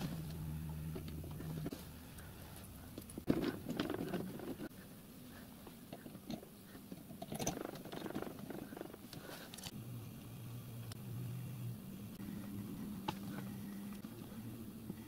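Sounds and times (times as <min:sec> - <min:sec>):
small metal parts clicking and scraping: 0:05.9 - 0:09.7.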